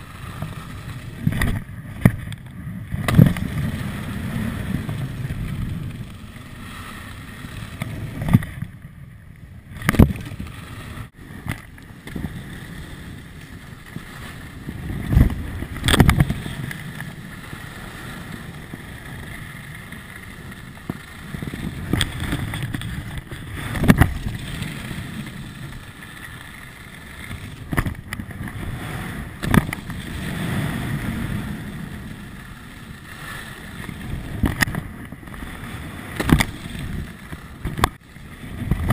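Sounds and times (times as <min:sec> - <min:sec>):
wind on microphone: 0:00.0 - 0:26.0, 0:26.9 - 0:38.9
skis running over snow: 0:00.0 - 0:38.9
ski landing thumps and clatters: 0:01.2 - 0:03.8, 0:15.0 - 0:16.4, 0:21.8 - 0:24.4, 0:27.6 - 0:28.3, 0:36.1 - 0:36.6.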